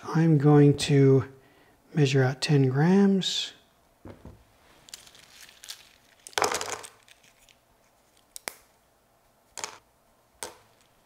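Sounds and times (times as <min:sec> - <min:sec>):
dried slices rustling crunch: 0:04.7 - 0:06.4.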